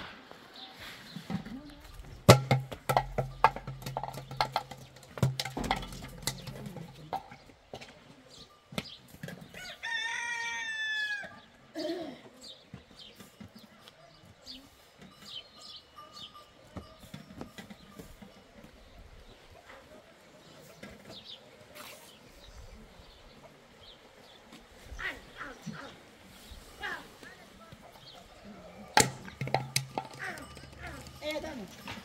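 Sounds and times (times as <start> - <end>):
sharp knocks and clicks: 2.0 - 8.0
rooster crowing: 9.6 - 11.5.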